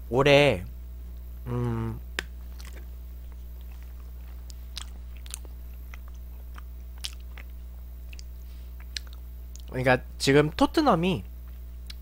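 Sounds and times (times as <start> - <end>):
steady low hum: 0.0 - 12.0
person chewing quietly: 1.6 - 9.8, 11.4 - 12.0.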